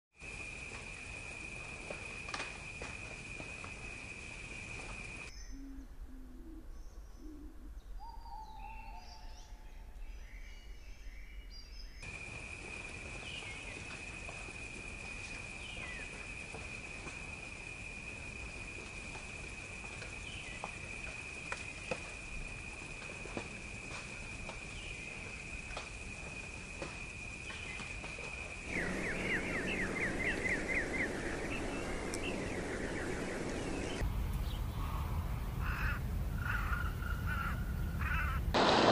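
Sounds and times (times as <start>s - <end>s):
bird chirps: 5.3s - 12.0s, 28.7s - 35.8s
low hooting calls: 28.6s - 38.6s.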